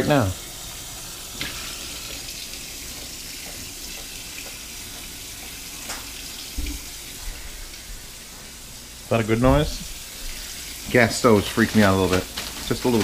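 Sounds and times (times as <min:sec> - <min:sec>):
tap running into a sink: 0:01.4 - 0:07.0.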